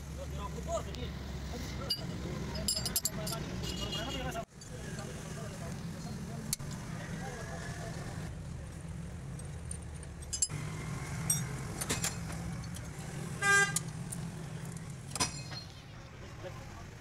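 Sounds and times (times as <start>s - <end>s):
metallic tool clinks: 1.9s - 3.5s, 10.2s - 10.6s
vehicle horn toot: 3.6s - 4.4s, 13.4s - 13.8s
engine humming: 4.6s - 17.0s.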